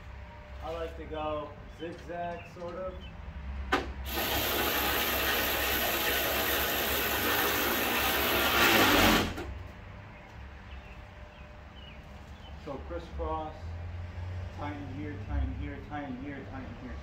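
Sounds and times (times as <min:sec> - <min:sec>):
small power tool running: 0:04.1 - 0:09.4.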